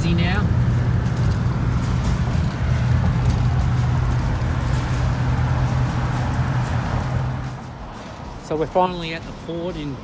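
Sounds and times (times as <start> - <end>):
low hum: 0.0 - 8.4
engine and tyre drone: 0.0 - 10.0.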